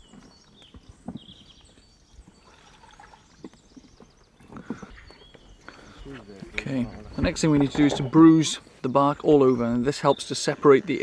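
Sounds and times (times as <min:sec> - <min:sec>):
birds chirping: 0:00.0 - 0:11.0.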